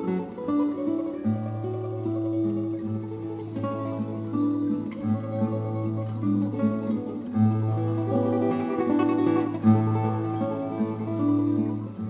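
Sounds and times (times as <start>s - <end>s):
plucked acoustic guitar: 0.0s - 12.0s.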